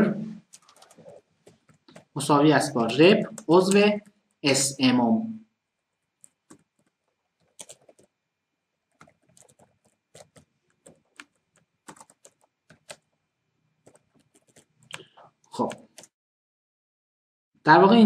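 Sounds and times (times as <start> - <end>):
faint keyboard typing: 0.4 - 4.5, 5.7 - 8.2, 8.8 - 13.2, 13.8 - 16.2.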